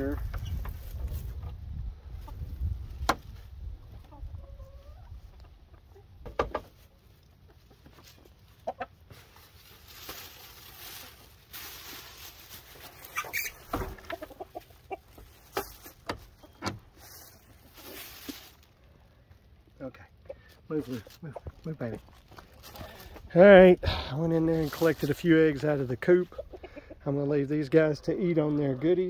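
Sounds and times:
chickens clucking: 0:00.0 - 0:23.3, 0:24.2 - 0:29.0
plastic bag rustling: 0:08.0 - 0:19.2, 0:20.7 - 0:23.3.

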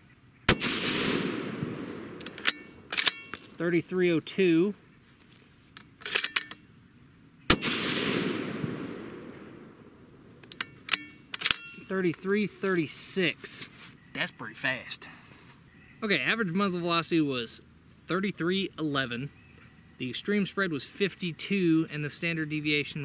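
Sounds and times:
rifle shots echoing: 0:00.5 - 0:03.8, 0:07.5 - 0:10.4
rifle bolt clicks: 0:00.6 - 0:03.6, 0:05.8 - 0:06.6, 0:10.4 - 0:11.7.

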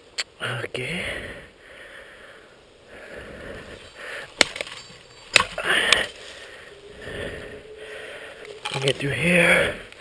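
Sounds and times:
machete chopping brush: 0:04.4 - 0:05.6.

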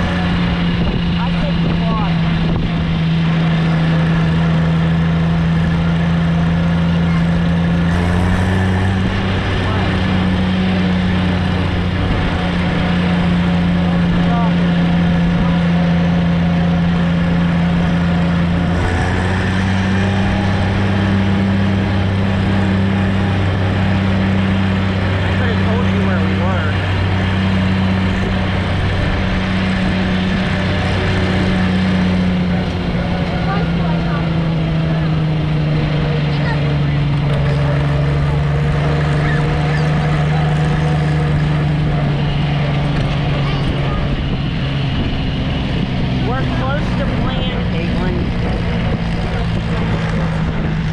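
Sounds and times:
road and wind rush: 0:00.0 - 0:50.9
tractor engine running: 0:00.0 - 0:50.9.

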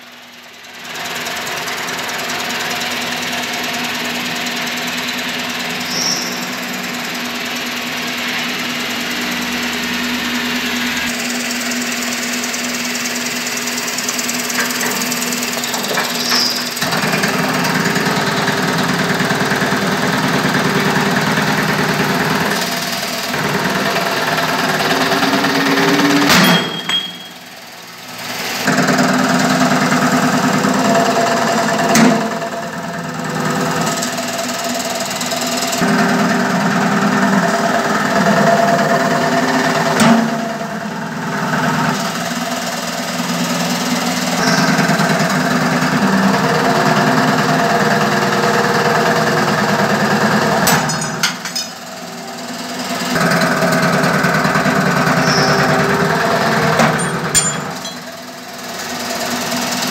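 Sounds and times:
sharp metallic knocks: 0:26.2 - 0:27.4, 0:50.7 - 0:51.8, 0:56.8 - 0:58.1.

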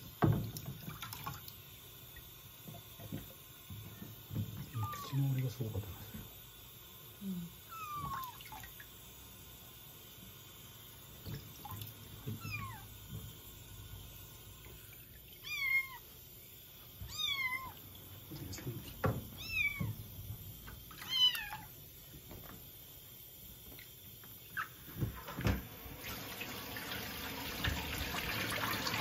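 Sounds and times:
water splashing in a basin: 0:00.0 - 0:05.7, 0:07.8 - 0:09.1, 0:11.2 - 0:13.3, 0:23.7 - 0:29.0
kitten meowing: 0:04.7 - 0:05.3, 0:07.7 - 0:08.4, 0:12.4 - 0:12.9, 0:15.4 - 0:16.0, 0:17.1 - 0:17.8, 0:19.4 - 0:19.9, 0:21.0 - 0:21.7.

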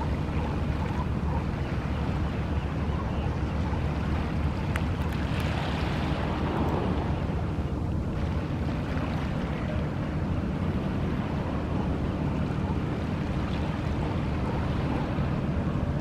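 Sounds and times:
sea rumbling: 0:00.0 - 0:16.0
wind: 0:00.0 - 0:16.0.

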